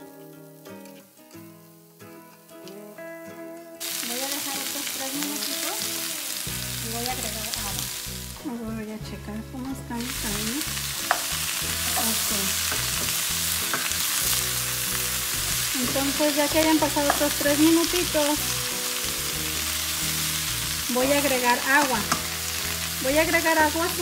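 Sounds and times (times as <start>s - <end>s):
food sizzling in pan: 0.0s - 24.0s
spatula stirring food: 11.0s - 18.1s.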